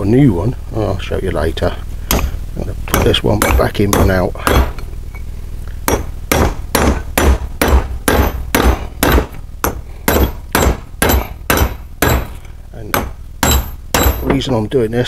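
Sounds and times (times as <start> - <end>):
hammer striking metal: 2.1 - 4.8, 5.9 - 14.5.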